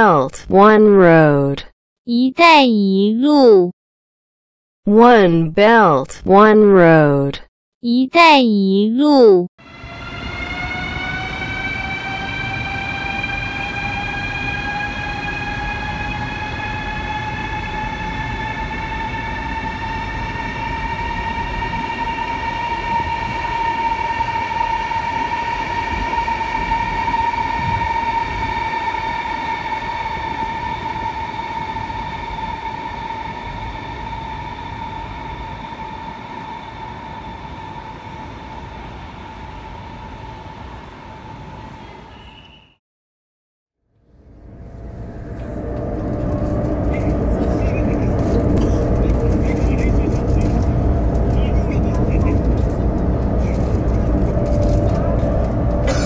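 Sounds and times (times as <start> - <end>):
train traction motors whining: 9.6 - 41.5, 44.2 - 56.0
low rumble from rails: 9.6 - 42.1, 43.9 - 56.0.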